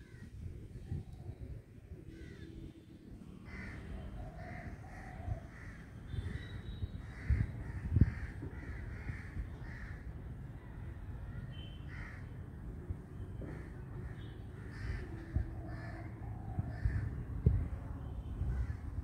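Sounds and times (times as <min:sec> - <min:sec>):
crows cawing: 0:02.1 - 0:02.6, 0:03.4 - 0:06.4, 0:07.0 - 0:10.1, 0:11.9 - 0:12.3, 0:13.5 - 0:17.1.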